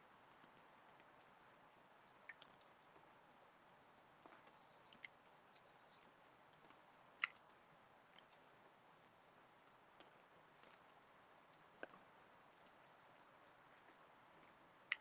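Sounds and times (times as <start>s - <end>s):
faint clicks: 0.4s - 3.1s, 4.2s - 8.7s, 9.6s - 15.0s.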